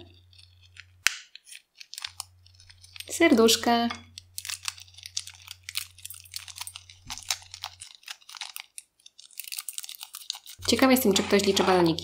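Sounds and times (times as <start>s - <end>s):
balloon crackling clicks: 1.0s - 1.5s.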